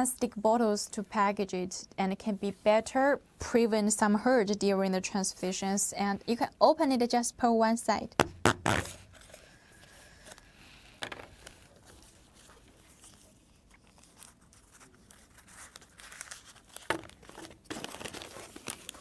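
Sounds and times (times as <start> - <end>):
plastic tube crackling: 8.2 - 9.5, 10.8 - 19.0
paper crinkling: 8.7 - 19.0.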